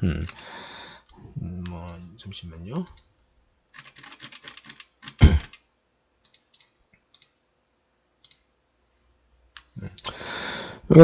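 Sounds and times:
keyboard typing: 0:03.7 - 0:05.6.

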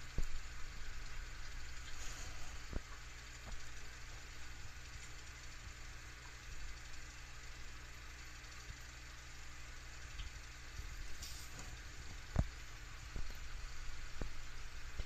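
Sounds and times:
low background hum: 0:00.0 - 0:15.0
even hiss: 0:01.6 - 0:03.7, 0:11.0 - 0:12.1.

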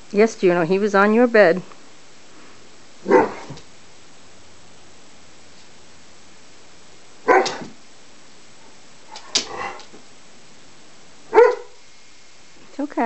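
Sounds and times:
dog barking: 0:03.0 - 0:03.6, 0:07.2 - 0:07.8, 0:11.3 - 0:11.8.

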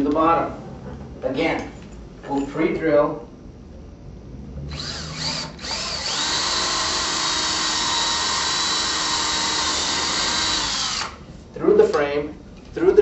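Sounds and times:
cordless drill drilling: 0:04.7 - 0:11.2.

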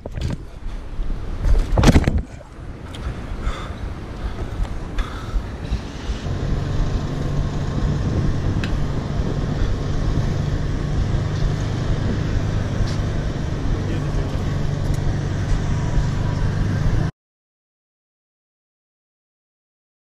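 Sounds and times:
wind on microphone: 0:00.0 - 0:13.9
tyres rumbling on pavement: 0:00.0 - 0:17.1.

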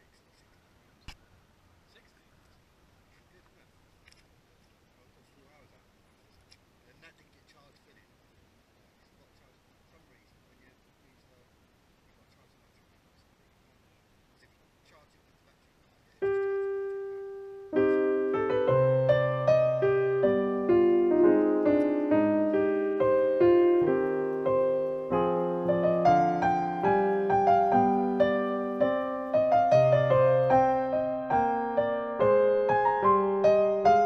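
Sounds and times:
piano music: 0:16.2 - 0:34.0.

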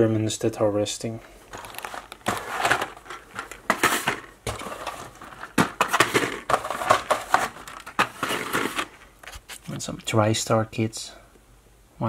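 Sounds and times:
cardboard scraping and rustling: 0:01.5 - 0:09.9.

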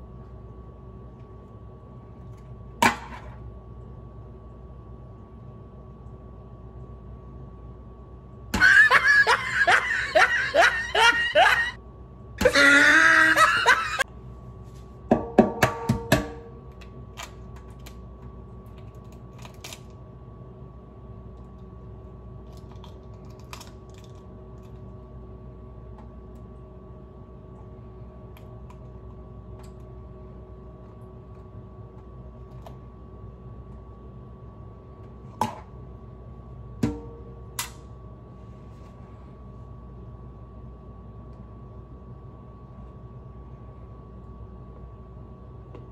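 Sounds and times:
faint room hum: 0:00.0 - 0:45.9
person laughing: 0:08.6 - 0:11.8, 0:12.4 - 0:14.0.

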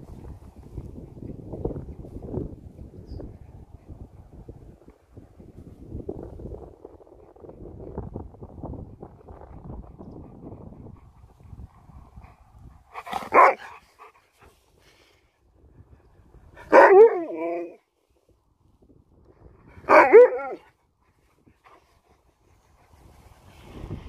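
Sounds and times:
dog barking: 0:13.2 - 0:13.8, 0:16.7 - 0:17.8, 0:19.9 - 0:20.7.

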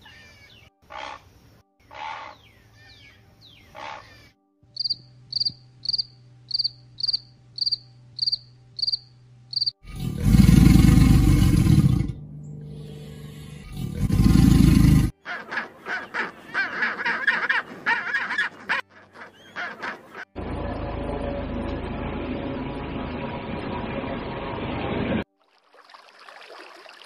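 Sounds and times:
alligator growling: 0:09.8 - 0:12.2, 0:13.3 - 0:15.1
penguins braying: 0:15.2 - 0:20.3.

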